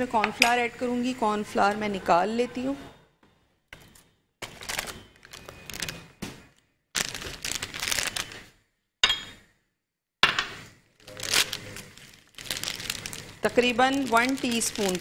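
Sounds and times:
packet rustling and crinkling: 4.4 - 8.5, 11.0 - 15.0.

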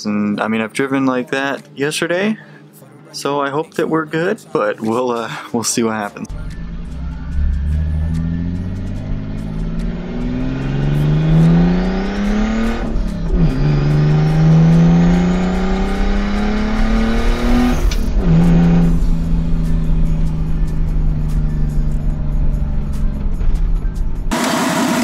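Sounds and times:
car engine accelerating hard: 6.3 - 25.0.

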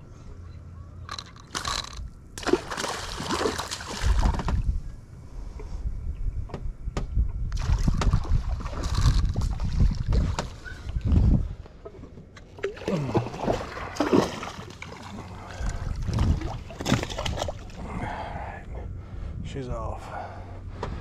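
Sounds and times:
fish splashing at water surface: 2.4 - 4.5, 12.6 - 17.8
low rumble on microphone: 3.9 - 14.0, 15.0 - 21.0.

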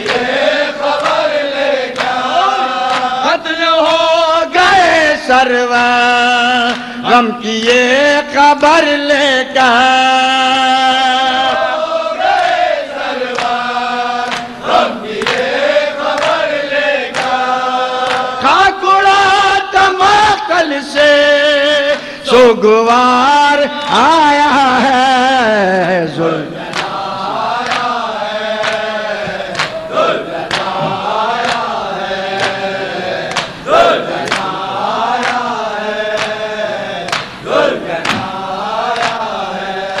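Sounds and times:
men singing a slow chant: 0.0 - 40.0
loud cries: 2.1 - 2.9
chest-beating slaps: 28.6 - 31.7, 33.2 - 34.6, 37.1 - 37.4, 38.0 - 38.4
hands slapping bare chests: 29.5 - 29.8, 30.5 - 31.7, 37.1 - 37.3.

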